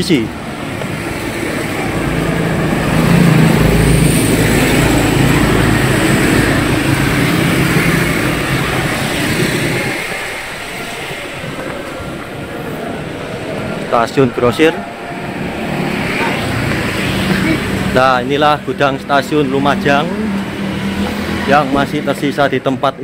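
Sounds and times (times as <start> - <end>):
vehicle engine running: 0.5 - 22.0.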